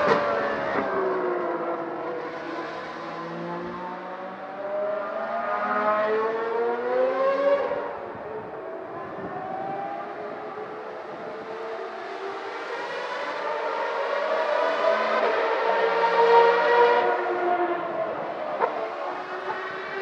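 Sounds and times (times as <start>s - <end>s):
racing car engine accelerating: 9.3s - 20.0s.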